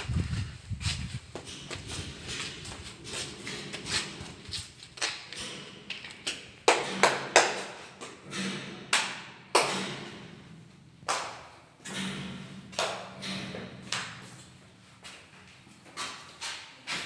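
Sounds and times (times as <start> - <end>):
footsteps on tiled floor: 0.0 - 6.2, 13.9 - 17.0.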